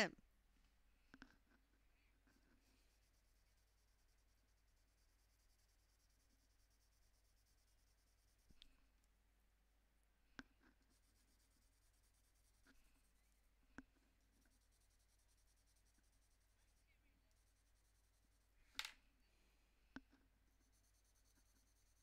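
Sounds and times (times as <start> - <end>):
pencil scratching on paper: 1.2 - 8.6, 10.4 - 18.6, 20.1 - 22.0.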